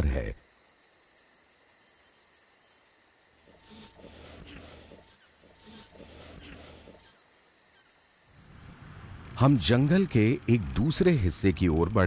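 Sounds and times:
crickets trilling: 0:00.0 - 0:12.0
bear snuffling and chewing: 0:03.5 - 0:07.2.

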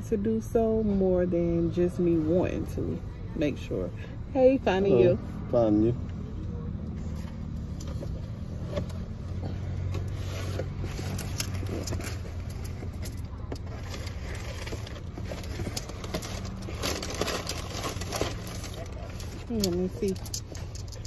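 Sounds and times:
car engine idling: 0:00.0 - 0:21.0
cardboard and paper bag rustling: 0:10.0 - 0:21.0.

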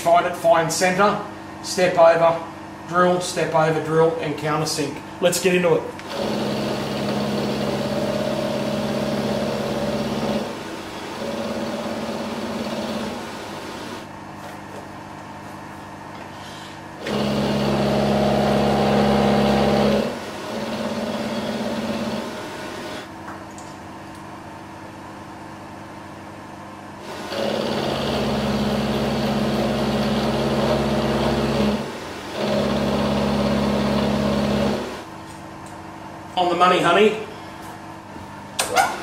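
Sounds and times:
milling machine whirring: 0:06.0 - 0:14.1, 0:16.8 - 0:23.1, 0:27.0 - 0:35.1.

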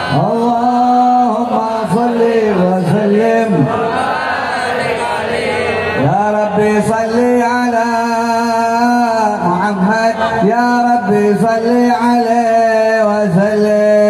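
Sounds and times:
men chanting slow melody: 0:00.0 - 0:07.2.

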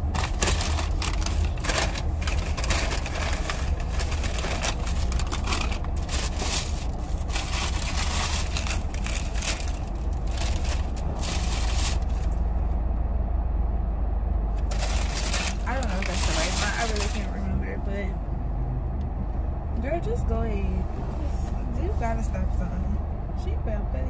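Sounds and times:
food packaging crinkling: 0:00.0 - 0:12.4, 0:14.6 - 0:17.3
car cabin rumble: 0:00.0 - 0:12.8.

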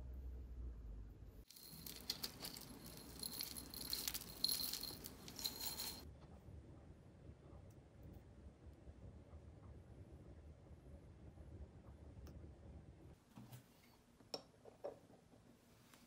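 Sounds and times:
granola rattling in glass jar: 0:01.5 - 0:06.0.

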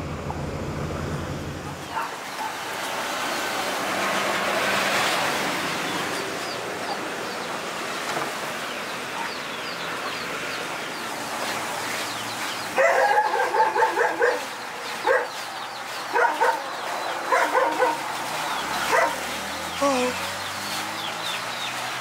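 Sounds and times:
small birds chirping: 0:05.1 - 0:22.0.

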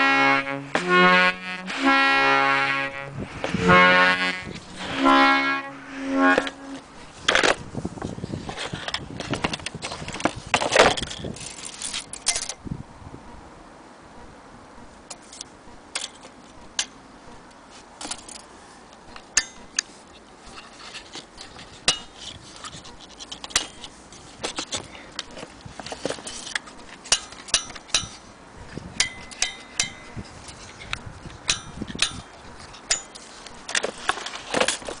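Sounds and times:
metallic clatter of fittings: 0:20.5 - 0:28.3, 0:29.0 - 0:35.0.

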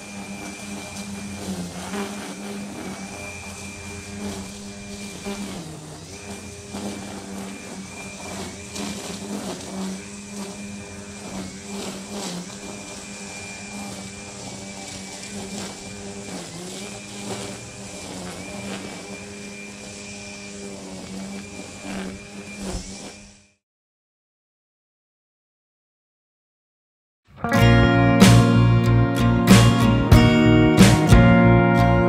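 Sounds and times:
steady hiss: 0:00.0 - 0:23.2
lawn machine humming: 0:00.0 - 0:23.6, 0:27.3 - 0:32.0.

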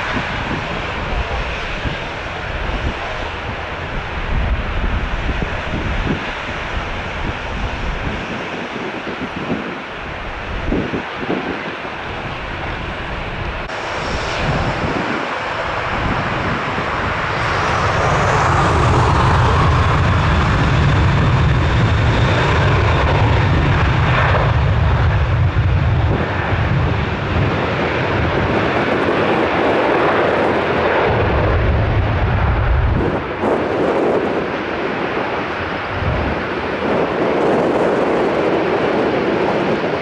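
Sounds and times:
jet roar with deep rumble: 0:00.0 - 0:40.0
jet engines spooling up: 0:12.4 - 0:25.3.

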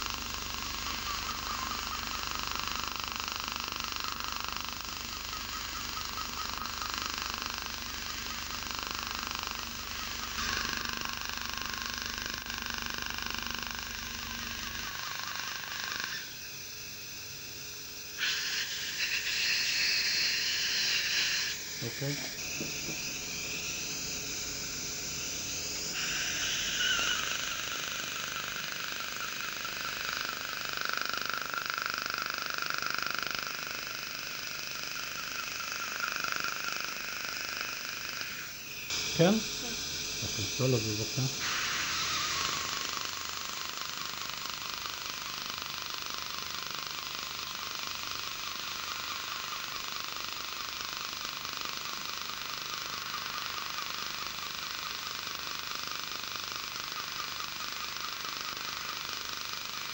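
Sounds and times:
dental laser hissing and pulsing: 0:00.0 - 0:59.9
steady hiss: 0:37.3 - 0:43.6.

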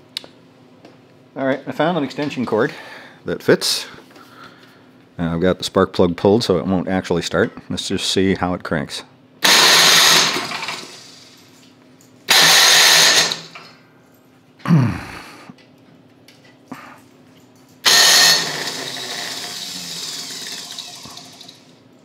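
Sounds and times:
electric starter cranking engine: 0:09.4 - 0:11.5, 0:12.3 - 0:13.6, 0:17.8 - 0:21.7.

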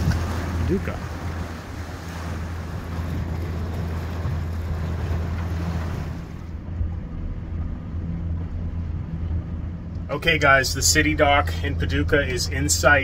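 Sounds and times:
wind buffeting microphone: 0:00.0 - 0:10.1
boat engine humming: 0:00.0 - 0:13.0
water noise: 0:00.0 - 0:13.0.

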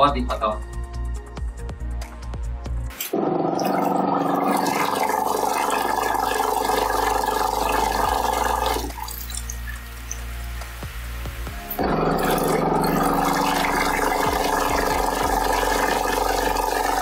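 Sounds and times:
washing machine churning water: 0:03.1 - 0:10.2, 0:11.8 - 0:17.0.

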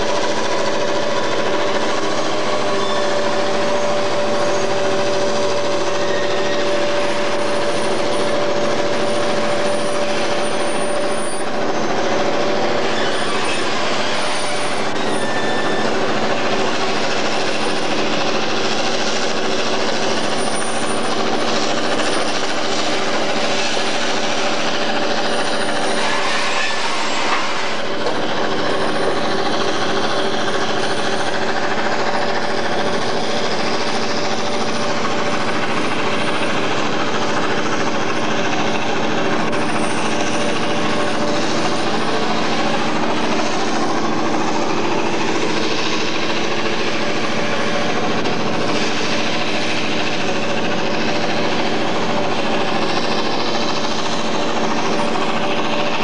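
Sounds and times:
train wheels clattering on rail: 0:00.0 - 0:56.0.

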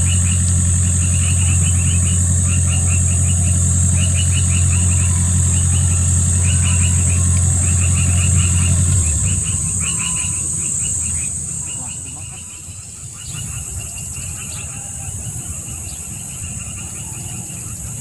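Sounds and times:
high-pitched insect buzz: 0:00.0 - 0:13.6
low engine hum: 0:00.0 - 0:18.0.

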